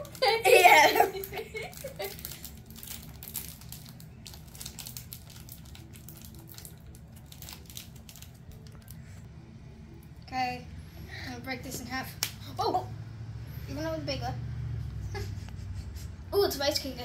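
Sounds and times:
snack wrapper crinkling: 0:01.1 - 0:09.1.

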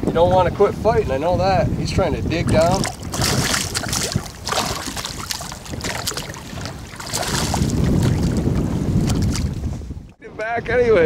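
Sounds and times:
wind rumble on microphone: 0:00.0 - 0:11.0
fish splashing at water surface: 0:02.4 - 0:09.6.

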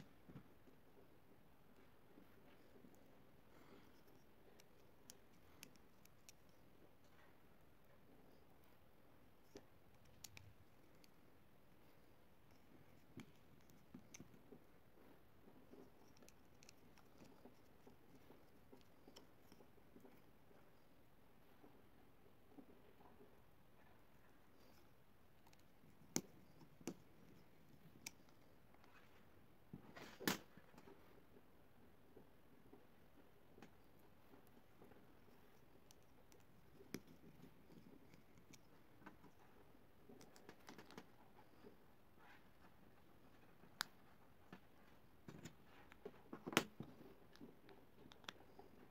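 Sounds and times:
small clicks and taps: 0:09.4 - 0:14.8, 0:24.6 - 0:29.2, 0:33.4 - 0:41.7, 0:43.3 - 0:48.9.

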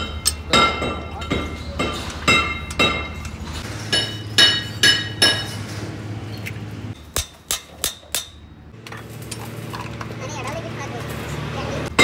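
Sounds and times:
hammer striking metal: 0:00.0 - 0:05.7, 0:07.0 - 0:08.6.

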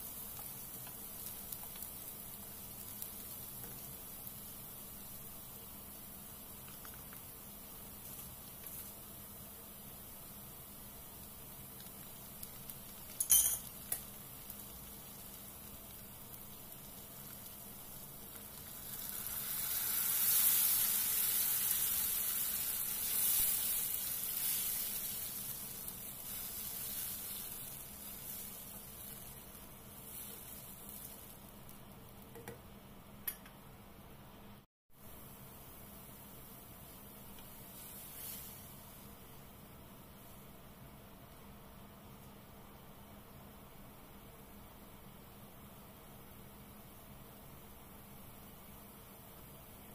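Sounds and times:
sauce sizzling in frying pan: 0:00.0 - 0:32.3, 0:35.0 - 0:40.4
spatula stirring: 0:20.3 - 0:31.7.

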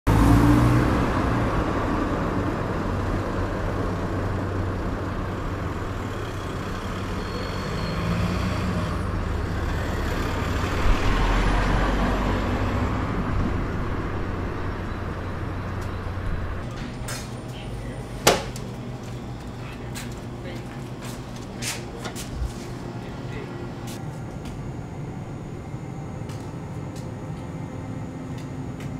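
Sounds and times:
vehicle passing: 0:00.1 - 0:24.0
city street traffic: 0:00.1 - 0:28.9
sharp knock: 0:18.2 - 0:18.6.

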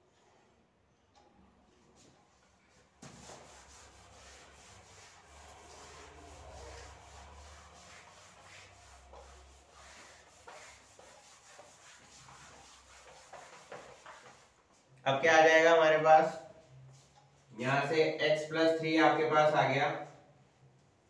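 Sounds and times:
eraser scrubbing whiteboard: 0:02.0 - 0:15.0.

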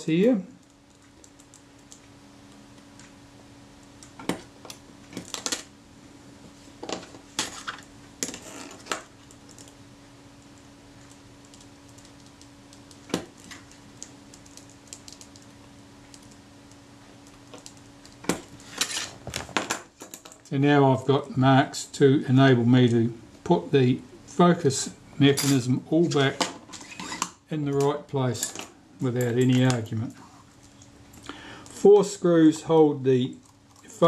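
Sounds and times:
faint steady hum: 0:00.0 - 0:34.0.

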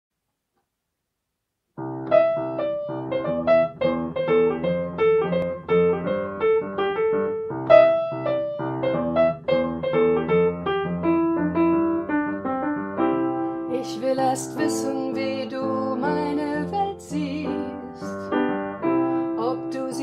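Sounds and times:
upright piano playing: 0:01.8 - 0:20.0.

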